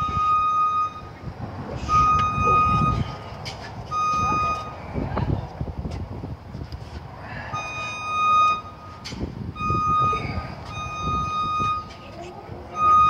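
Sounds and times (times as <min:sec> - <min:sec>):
electronic beep: 0:04.0 - 0:04.8, 0:09.6 - 0:11.9, 0:12.7 - 0:13.0.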